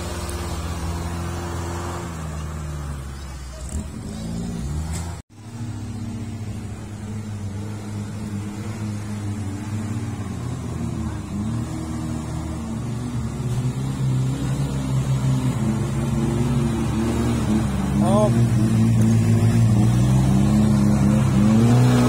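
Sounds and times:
car engine at low revs: 0:00.0 - 0:22.0.

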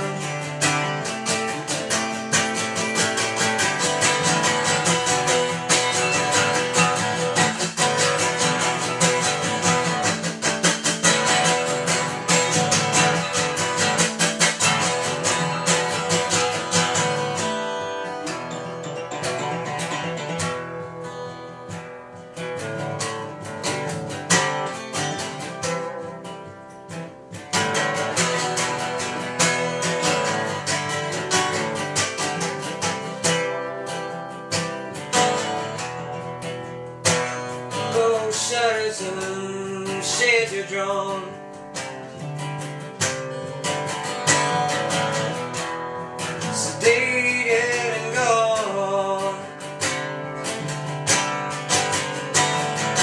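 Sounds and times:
acoustic guitar strumming: 0:00.0 - 0:53.0
person singing wordlessly: 0:37.7 - 0:41.7, 0:46.4 - 0:49.9.

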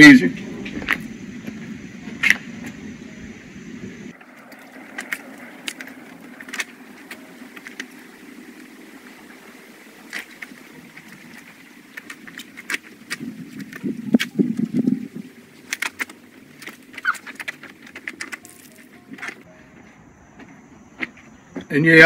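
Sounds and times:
water drips and splashes: 0:04.1 - 0:19.5
wet mitt scrubbing: 0:04.3 - 0:19.5.

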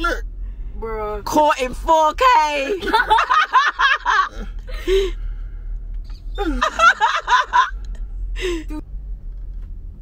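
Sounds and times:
car cabin rumble: 0:00.0 - 0:10.0
person laughing and exclaiming: 0:06.4 - 0:07.8.

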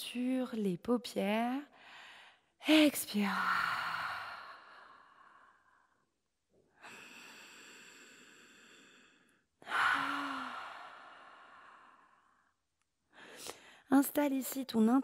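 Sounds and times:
woman breathing deeply: 0:01.8 - 0:02.6, 0:03.4 - 0:06.1, 0:06.8 - 0:13.9.

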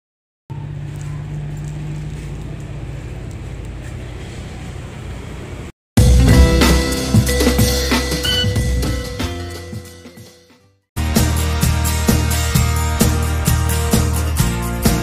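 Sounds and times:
music with drums: 0:06.0 - 0:15.0.

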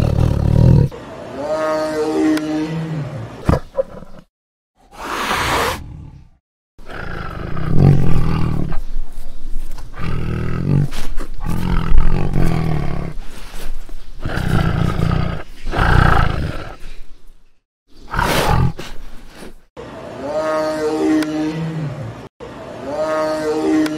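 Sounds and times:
tiger roaring: 0:00.0 - 0:04.2, 0:04.9 - 0:08.8, 0:10.0 - 0:13.2, 0:14.2 - 0:16.8, 0:18.1 - 0:18.8.

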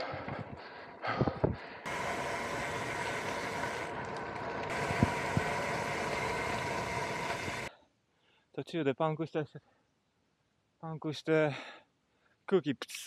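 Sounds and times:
air hissing out of tyre: 0:01.8 - 0:04.1, 0:04.7 - 0:07.7.

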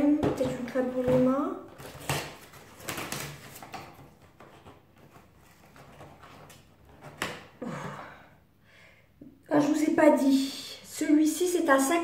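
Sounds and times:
cardboard scraping and rustling: 0:00.5 - 0:07.4.

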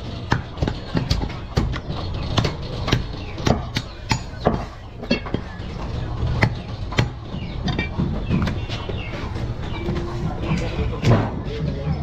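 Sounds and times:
cleaver chopping meat on wood: 0:00.0 - 0:08.6.

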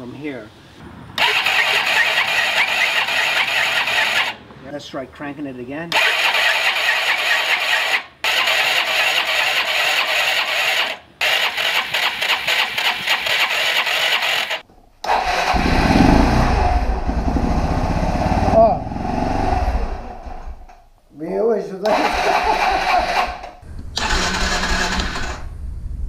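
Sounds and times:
electric starter cranking: 0:01.2 - 0:04.4, 0:05.9 - 0:16.6, 0:21.9 - 0:25.5
engine running with fast beat: 0:15.5 - 0:20.2.

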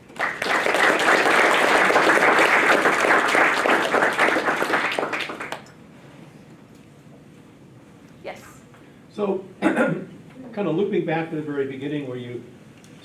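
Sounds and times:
audience applauding: 0:00.0 - 0:05.7.

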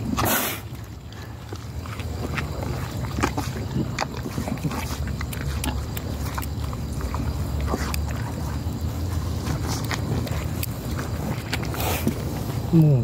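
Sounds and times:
liquid sloshing and gurgling: 0:00.0 - 0:13.0
steady low rumble: 0:00.0 - 0:13.0.

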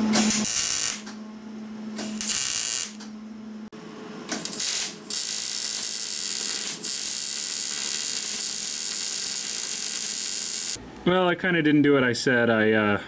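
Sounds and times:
welder steady hum: 0:00.0 - 0:10.8
welding arc crackling: 0:00.2 - 0:01.1, 0:02.0 - 0:03.0, 0:04.4 - 0:10.8.

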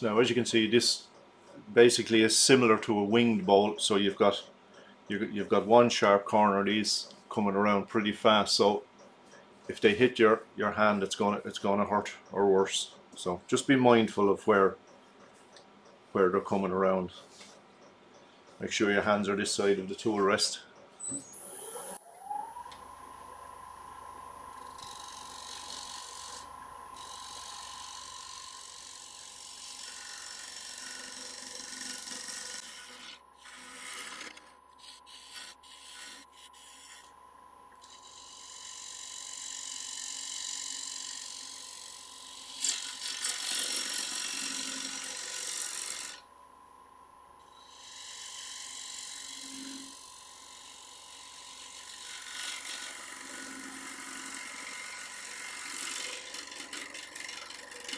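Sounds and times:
wood lathe whining: 0:21.0 - 0:22.9, 0:24.5 - 0:37.1, 0:37.8 - 0:46.2, 0:47.5 - 0:57.9.

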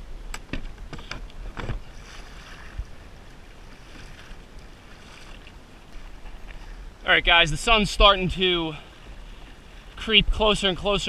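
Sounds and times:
wind on microphone: 0:00.0 - 0:07.0
water sloshing against kayak hull: 0:00.4 - 0:07.0, 0:08.0 - 0:10.1.

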